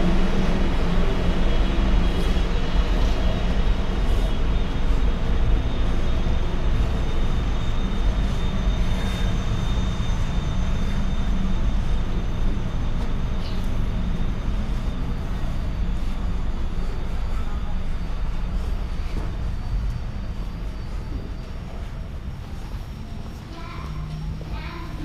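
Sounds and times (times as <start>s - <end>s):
jet aircraft rumble and whine: 0.0s - 25.0s.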